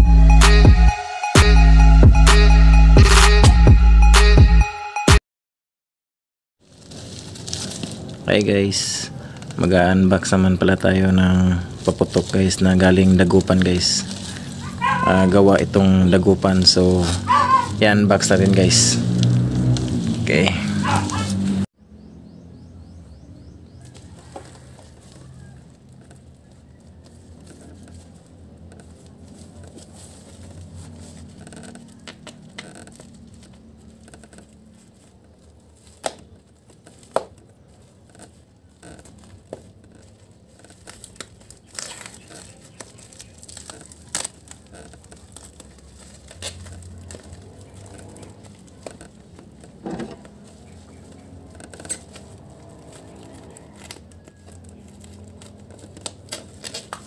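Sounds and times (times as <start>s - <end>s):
packing tape peeling and tearing: 6.6s - 8.5s, 11.0s - 21.6s, 25.2s - 57.0s
plastic wrap crinkling: 6.6s - 21.5s, 23.8s - 57.0s
scissors cutting plastic wrap: 11.0s - 21.5s, 24.5s - 57.0s.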